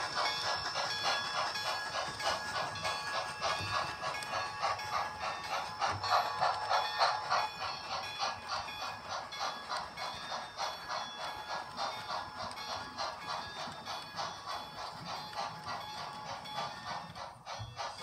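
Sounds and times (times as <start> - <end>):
model train rhythmic clatter: 0.0 - 18.0.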